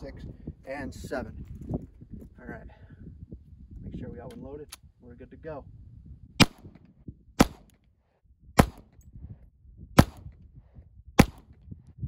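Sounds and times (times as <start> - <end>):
pistol shots: 6.4 - 6.8, 7.4 - 7.8, 8.6 - 8.9, 10.0 - 10.2, 11.2 - 11.5.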